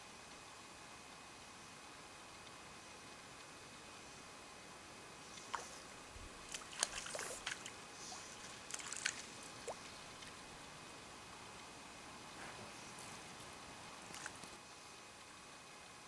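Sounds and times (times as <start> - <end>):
faint outdoor background: 0.0 - 16.0
water splashes: 6.4 - 10.4.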